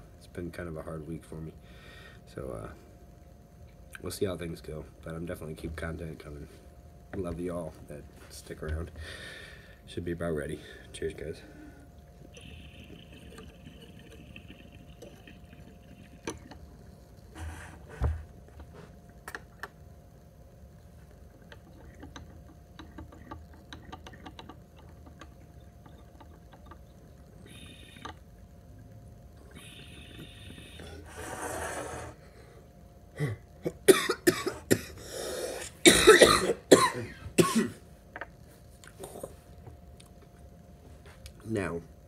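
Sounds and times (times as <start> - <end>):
bong water bubbling: 11.7 - 18.5, 20.8 - 31.2
person coughing: 33.2 - 37.8.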